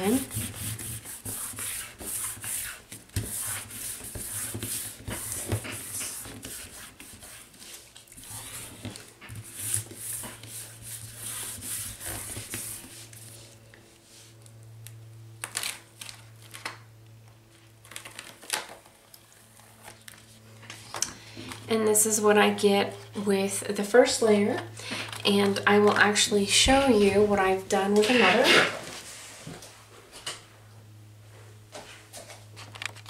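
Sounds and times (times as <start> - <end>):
hands rubbing paper: 0.0 - 14.3
paper rustling and crackling: 15.4 - 16.8, 17.8 - 21.0.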